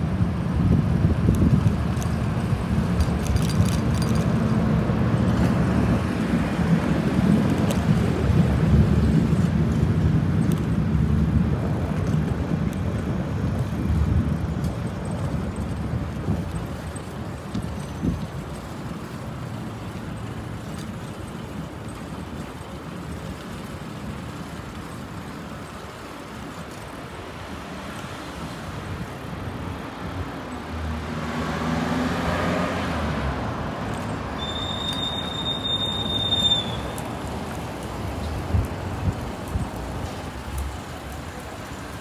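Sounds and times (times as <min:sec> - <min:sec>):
street traffic noise: 0:00.0 - 0:42.0
car engine passing by: 0:30.7 - 0:37.0.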